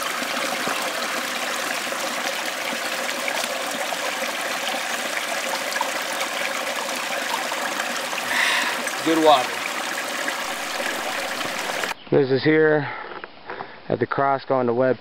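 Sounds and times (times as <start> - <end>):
creek water flowing: 0.0 - 12.0.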